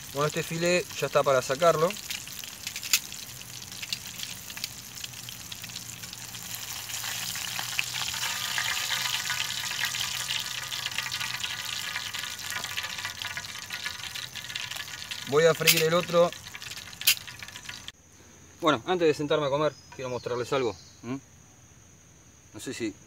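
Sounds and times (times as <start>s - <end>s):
oil sizzling in a pan: 0.0s - 18.0s.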